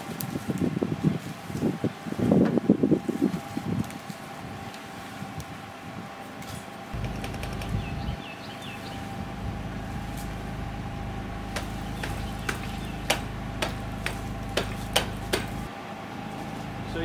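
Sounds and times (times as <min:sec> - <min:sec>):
steady low hum: 0:00.0 - 0:17.0
sharp knocks and clicks: 0:07.0 - 0:07.9, 0:11.6 - 0:15.6.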